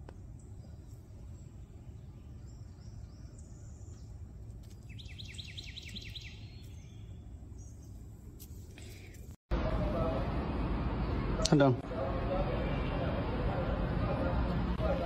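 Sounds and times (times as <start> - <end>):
bird trilling: 4.9 - 7.9.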